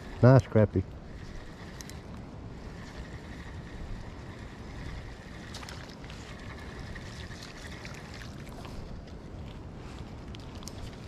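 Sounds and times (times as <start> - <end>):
fishing reel clicking and whining: 0.0 - 8.6
wind buffeting microphone: 0.0 - 11.0.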